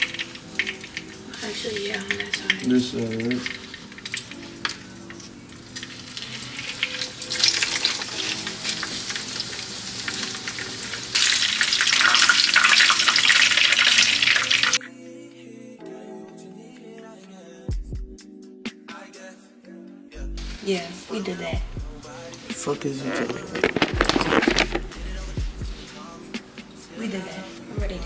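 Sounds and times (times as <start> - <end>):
pork sizzling in a skillet: 0.0 - 14.8.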